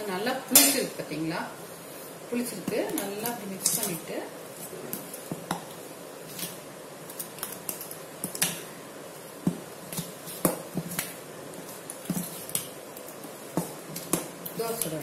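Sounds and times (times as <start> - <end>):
hand mixing batter in steel bowl: 2.1 - 15.0.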